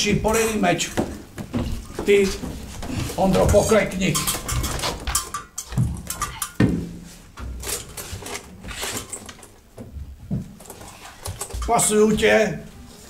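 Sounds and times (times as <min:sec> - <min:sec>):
footsteps on wooden stage floor: 0:00.0 - 0:03.8.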